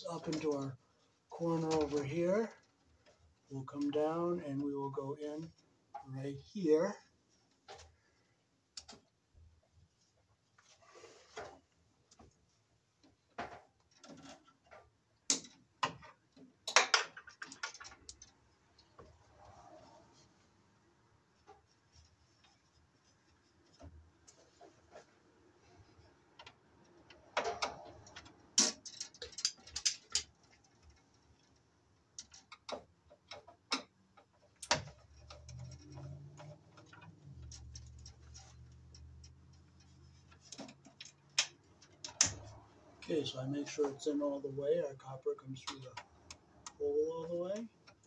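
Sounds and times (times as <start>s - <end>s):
wire and tools tapping metal panel: 13.3s - 18.3s, 26.4s - 31.5s, 32.1s - 42.6s.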